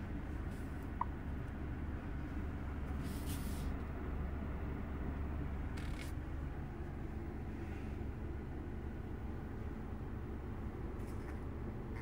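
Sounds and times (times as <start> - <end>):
car engine running: 0.0 - 12.0
brief hisses: 3.0 - 3.8.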